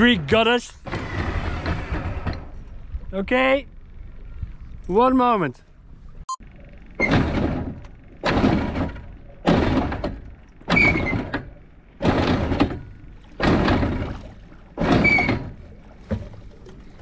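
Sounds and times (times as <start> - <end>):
heavy thuds at boat bow: 7.1 - 17.0.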